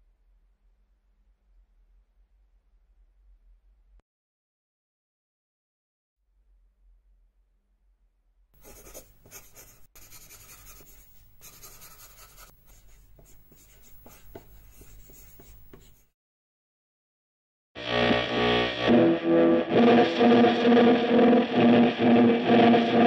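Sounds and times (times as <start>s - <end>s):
pencil scratching on paper: 8.6s - 16.1s.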